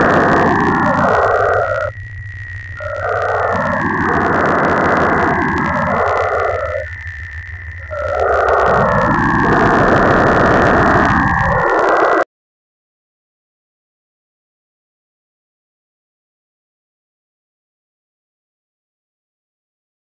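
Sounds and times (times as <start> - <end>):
dense grainy wash of sound: 0.0 - 12.2.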